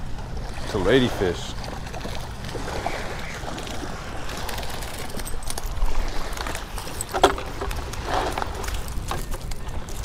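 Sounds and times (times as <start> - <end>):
wind rumbling on microphone: 0.0 - 10.0
knocks and crunches: 4.9 - 10.0.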